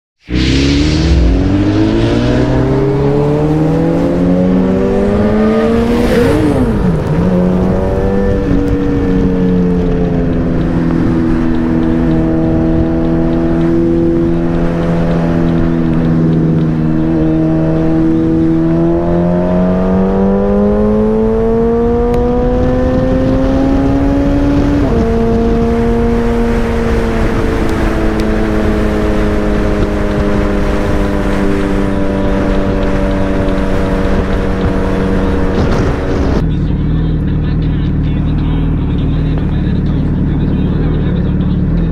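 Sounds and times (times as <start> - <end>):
low rumbling noise: 0.2 - 20.4, 27.0 - 41.9
motorcycle engine accelerating: 0.2 - 41.9.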